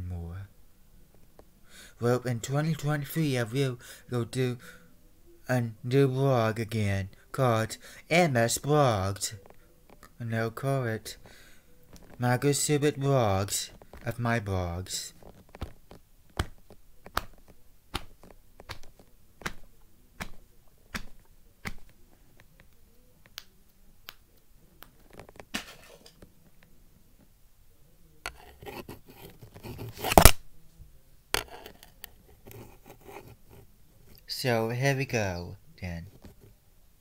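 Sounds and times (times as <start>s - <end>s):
rustling handling noise: 11.1s - 12.7s, 13.4s - 23.2s.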